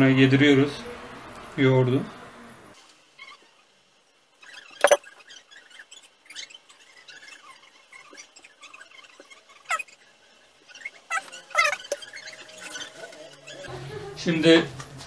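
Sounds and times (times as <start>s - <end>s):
short high squeaks: 3.2s - 3.7s, 4.4s - 13.7s.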